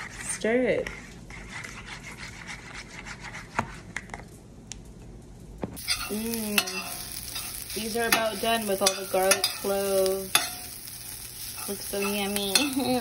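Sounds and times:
metal spoon scraping a bowl: 5.8 - 10.8, 11.4 - 13.0
food sizzling in a frying pan: 5.8 - 13.0.

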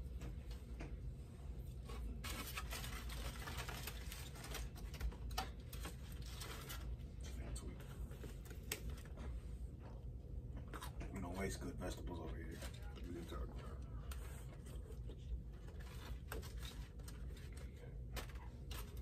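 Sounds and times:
food wrappers crinkling: 1.9 - 7.1, 14.1 - 19.0.

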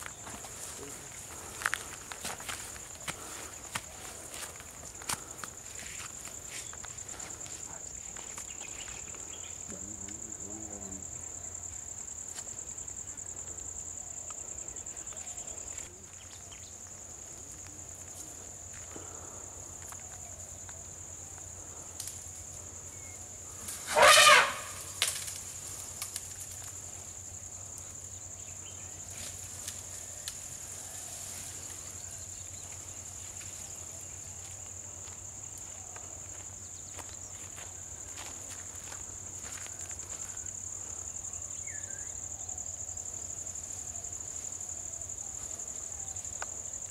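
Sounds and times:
insects droning high-pitched: 0.0 - 46.9
loud wavering call: 23.8 - 25.0.

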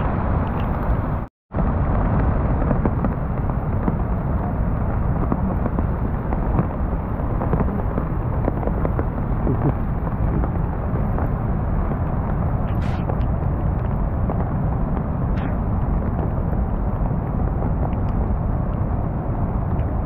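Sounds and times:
rain falling: 1.9 - 13.0.

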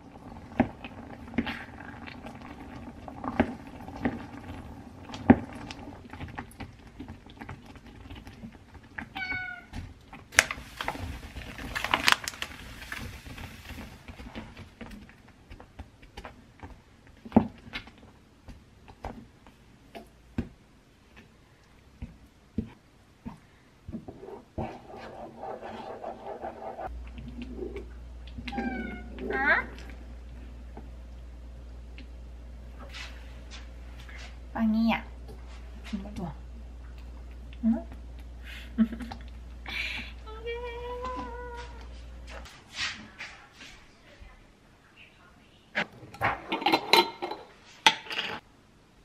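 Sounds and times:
cat meowing: 9.2 - 9.7, 28.5 - 29.4.

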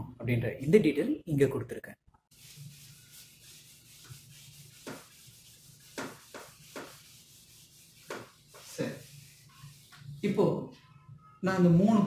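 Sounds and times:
marker scratching on whiteboard: 2.3 - 10.2.

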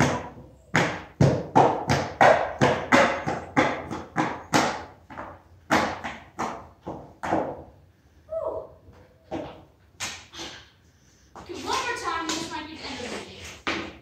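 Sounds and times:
skateboard wheels knocking on concrete: 0.0 - 7.7, 13.6 - 14.0.

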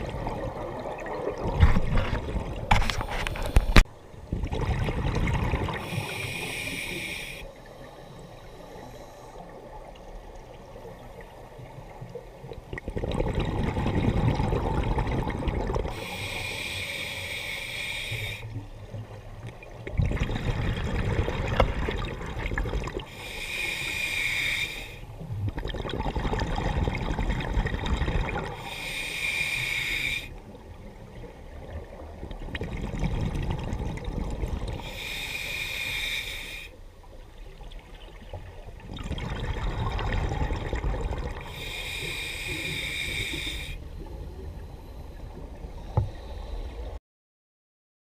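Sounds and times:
exhaled bubbles rumbling: 0.0 - 5.9, 11.9 - 16.0, 18.6 - 23.1, 25.2 - 28.6, 30.6 - 34.8, 37.6 - 41.6
regulator inhale hiss: 5.8 - 9.5, 15.9 - 18.6, 23.1 - 25.1, 28.5 - 30.4, 34.8 - 36.8, 41.4 - 46.9.

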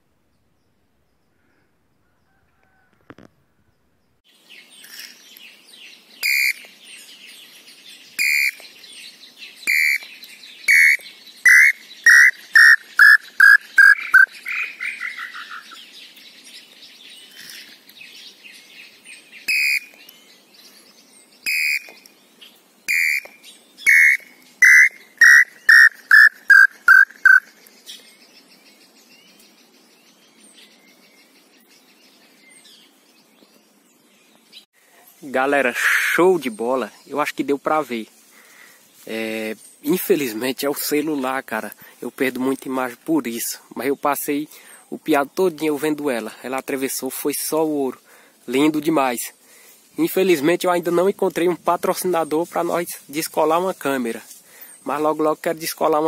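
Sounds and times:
bird whistled song: 4.6 - 17.3, 18.1 - 20.4, 21.4 - 22.2, 22.9 - 33.6.

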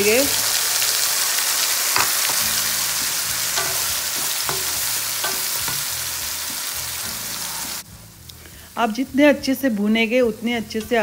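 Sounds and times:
paste sizzling in hot oil: 0.0 - 8.8
spatula scraping pan: 2.0 - 6.4.

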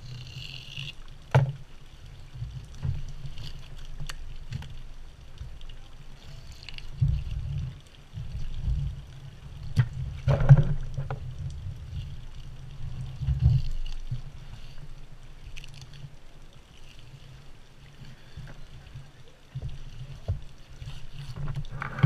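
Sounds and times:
low steady rumble: 0.0 - 22.0
rustle and clatter: 0.0 - 22.0.

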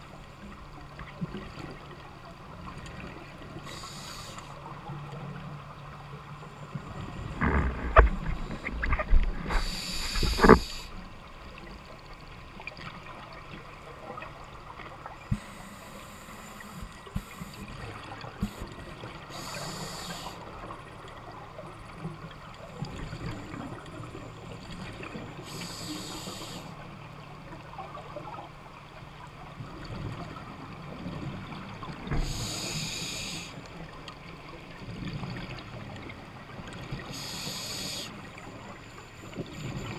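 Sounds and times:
low underwater noise: 0.0 - 39.9
diver's bubbles hissing: 7.4 - 10.9, 32.2 - 33.5, 37.2 - 38.2.

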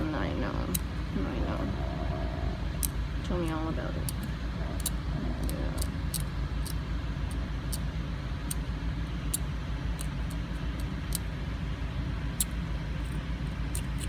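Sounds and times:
steady low rumble: 0.0 - 14.0
scaler scraping teeth: 1.4 - 6.8.

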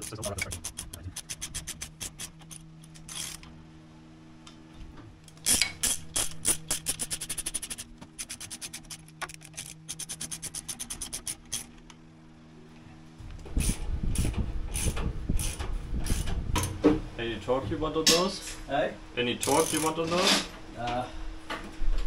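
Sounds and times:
hand ratchet clicking: 0.0 - 3.4, 5.3 - 11.7, 13.6 - 16.3, 19.4 - 20.1.

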